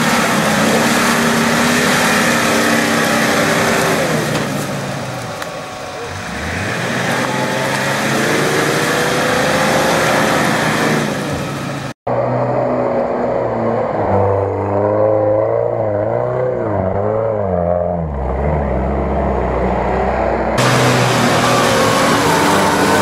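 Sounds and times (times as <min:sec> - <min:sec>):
wheels churning through mud: 0:00.0 - 0:11.9
off-road engines revving: 0:00.0 - 0:23.0.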